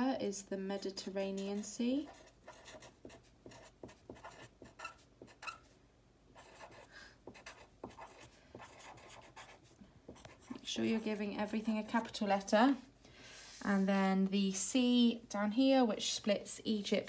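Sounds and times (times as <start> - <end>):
pen scratching on paper: 1.4 - 5.7, 6.4 - 10.6.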